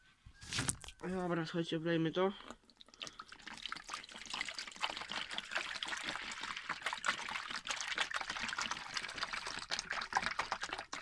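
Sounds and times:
water pouring and splashing: 2.4 - 11.0.

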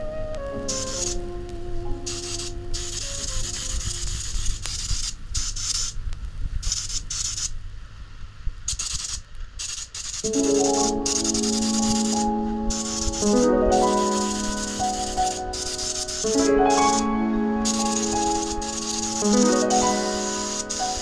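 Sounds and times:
background music: 0.0 - 3.6, 10.3 - 21.0
paint spray gun hissing: 0.7 - 1.2, 2.0 - 6.0, 6.6 - 7.6, 8.7 - 21.0.

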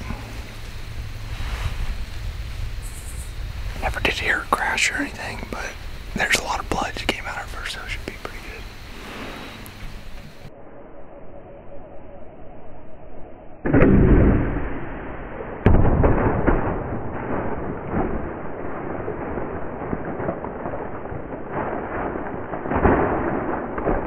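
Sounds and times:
deer running through dry leaves: 0.2 - 3.6.

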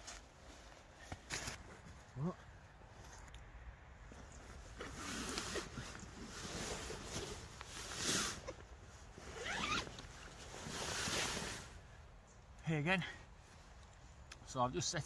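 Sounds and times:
zip being pulled open: 4.7 - 8.6, 9.2 - 11.7.

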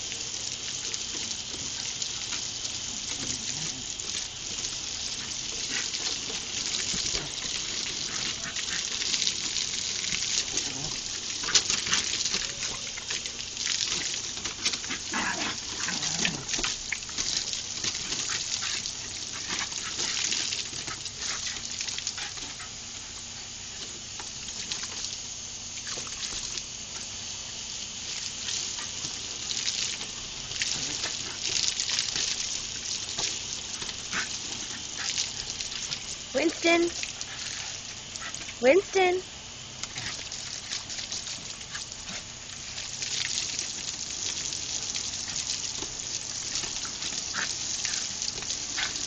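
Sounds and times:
water splashing: 0.0 - 27.2, 27.8 - 49.0
garden hose spraying water: 0.0 - 49.0
dog noises: 5.1 - 22.9, 33.7 - 39.2, 46.4 - 49.0.

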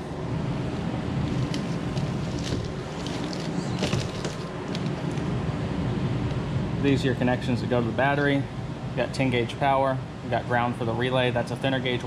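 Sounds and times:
low machine hum: 0.0 - 12.0
faint clicks and rustles: 1.2 - 5.3.

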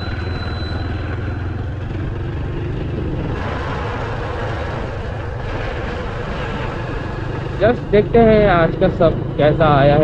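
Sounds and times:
motorcycle engine running: 0.0 - 10.0
wind rush on microphone: 2.7 - 7.8.

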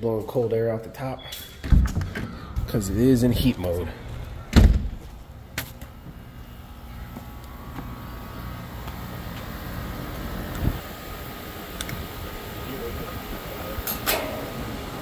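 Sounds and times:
heat pump humming: 1.6 - 15.0
door thudding shut: 4.5 - 5.0.

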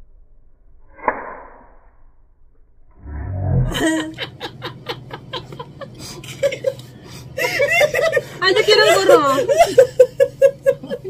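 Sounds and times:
brief low rumble: 0.0 - 4.1
people laughing hard: 3.7 - 11.0.

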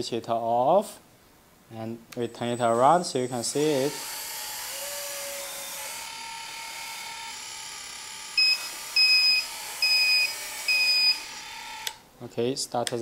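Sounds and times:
small electric motors whining: 2.4 - 12.0
two-pitched electronic beeps: 8.4 - 11.2.

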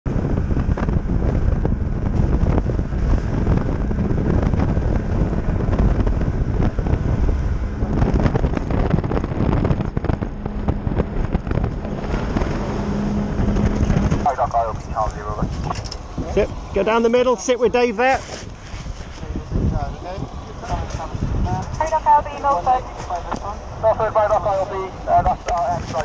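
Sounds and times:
boat engine running: 0.0 - 26.0
wind buffeting microphone: 0.0 - 26.0.

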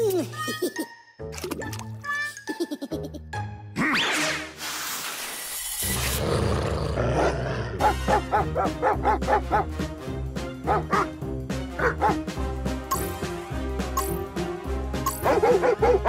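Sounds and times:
background music: 0.0 - 4.6, 5.8 - 16.0
cartoon dog barks and yelps: 7.2 - 9.7, 15.1 - 16.0.

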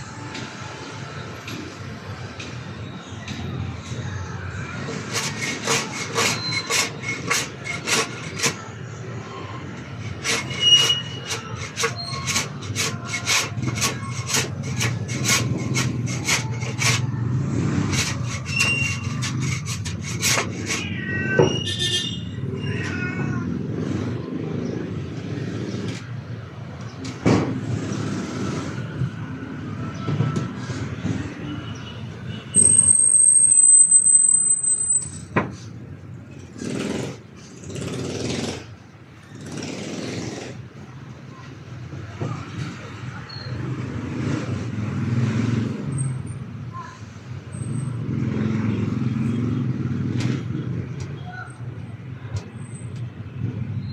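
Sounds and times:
hand tool scraping board: 4.9 - 8.7, 10.0 - 20.9.

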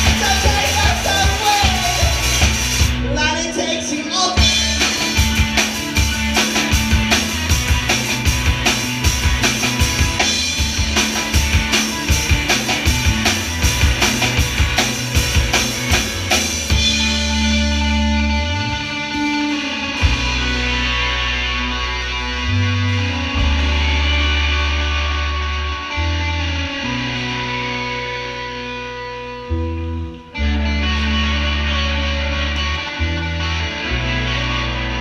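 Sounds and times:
fast steady drumming: 0.0 - 3.0, 4.4 - 17.6
electric guitars: 0.0 - 35.0.

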